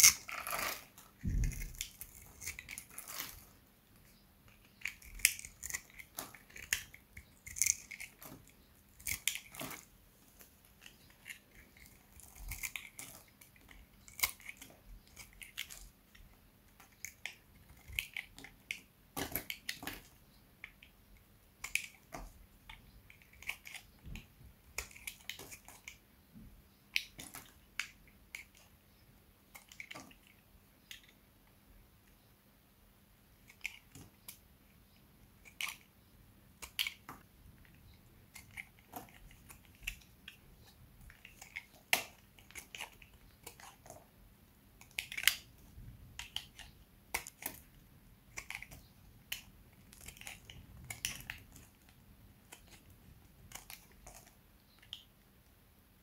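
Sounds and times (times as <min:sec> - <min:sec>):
dry soap crunching: 0:00.0 - 0:03.6, 0:04.5 - 0:20.9, 0:36.5 - 0:44.1, 0:44.7 - 0:55.0.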